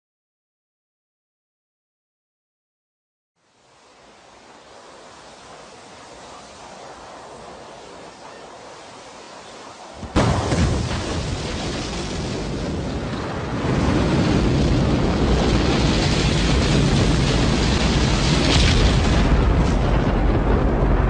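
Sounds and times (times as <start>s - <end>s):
faint hiss: 3.4s - 12.7s
rocket engine rumble: 3.7s - 21.0s
rocket engine blast: 9.8s - 21.0s.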